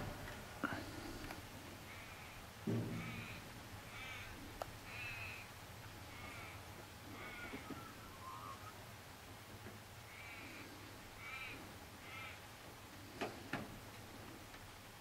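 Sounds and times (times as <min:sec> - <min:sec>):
bird calling: 0:01.8 - 0:08.9, 0:10.0 - 0:12.4
dull thump: 0:02.6 - 0:03.6.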